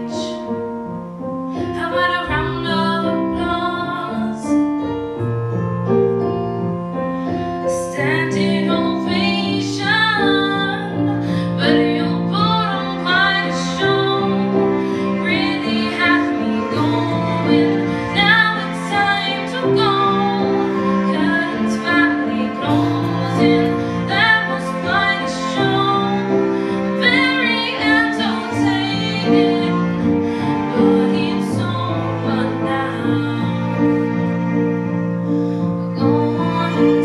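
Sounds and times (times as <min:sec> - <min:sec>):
bowed strings: 0:00.0 - 0:37.0
woman singing a slow ballad: 0:01.5 - 0:04.6, 0:07.6 - 0:26.4, 0:36.0 - 0:37.0.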